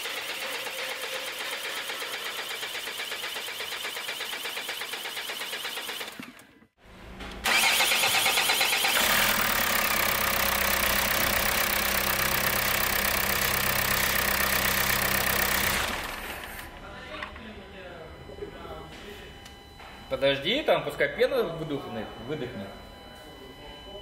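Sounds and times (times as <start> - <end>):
diesel engine starter cranking: 7.3 - 16.8.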